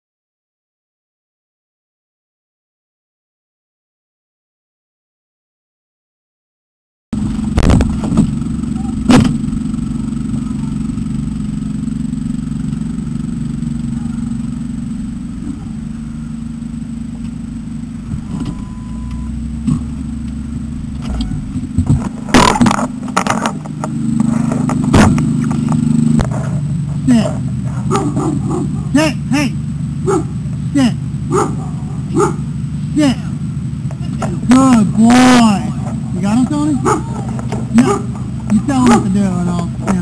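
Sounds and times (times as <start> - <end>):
vehicle engine and road rumble: 7.2 - 40.0
knocks and clatters: 19.6 - 27.0.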